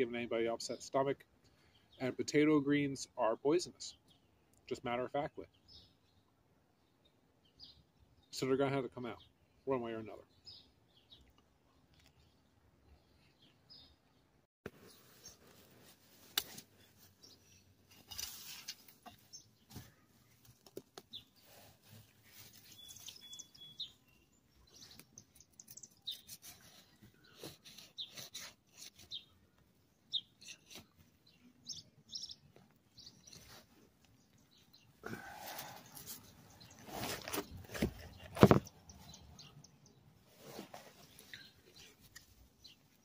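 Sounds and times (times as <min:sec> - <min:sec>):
birds chirping: 0:02.9 - 0:15.6, 0:16.7 - 0:43.0
trowel scraping in dry soil: 0:14.7 - 0:20.0, 0:24.8 - 0:29.3, 0:35.1 - 0:38.7, 0:40.3 - 0:42.3
rustling leaves: 0:14.7 - 0:24.0, 0:35.1 - 0:39.2.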